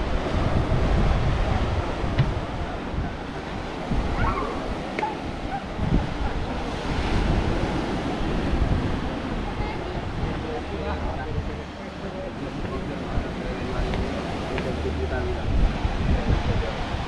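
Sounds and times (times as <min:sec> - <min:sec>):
steady rushing noise: 0:00.0 - 0:17.0
wind buffeting microphone: 0:00.0 - 0:17.0.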